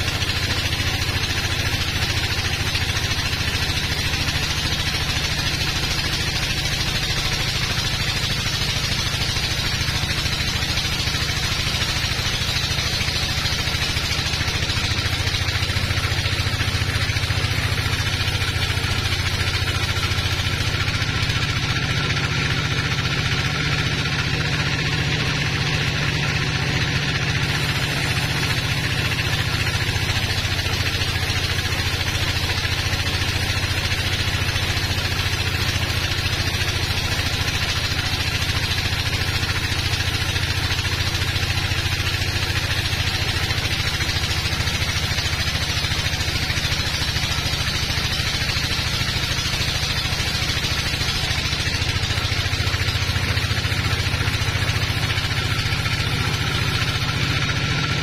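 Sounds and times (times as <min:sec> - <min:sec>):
bandsaw cutting a log: 0:00.0 - 0:58.0.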